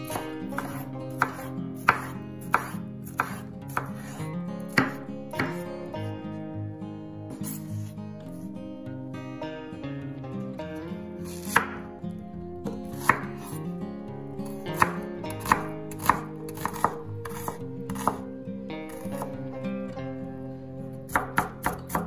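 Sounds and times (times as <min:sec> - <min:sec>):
soft background music: 0:00.0 - 0:22.0
knife hitting cutting board: 0:00.1 - 0:04.1, 0:04.7 - 0:05.6.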